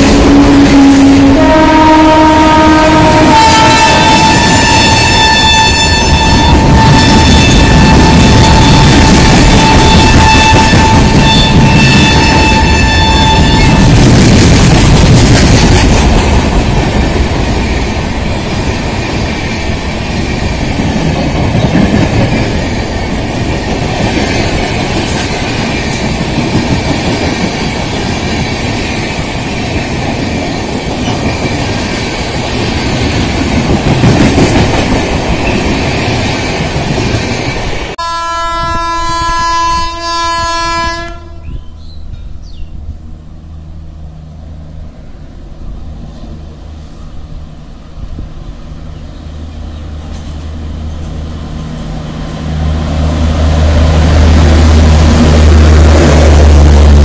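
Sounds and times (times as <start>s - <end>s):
locomotive horn: 0.0s - 13.9s, 38.0s - 41.6s
train wheels rumbling on rail: 0.0s - 57.0s.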